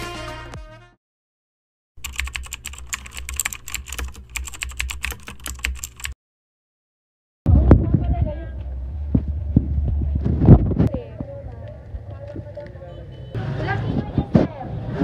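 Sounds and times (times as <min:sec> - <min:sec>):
background music: 0:00.0 - 0:01.0.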